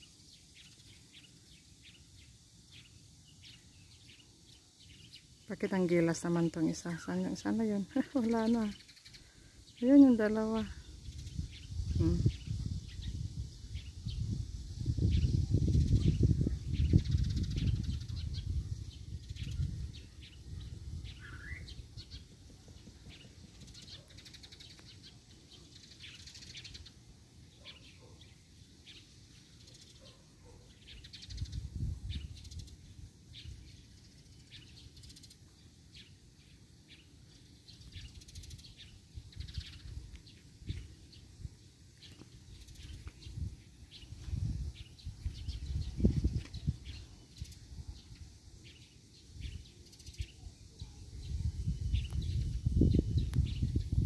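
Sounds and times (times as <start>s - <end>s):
high bird chirps: 7.5s - 27.0s.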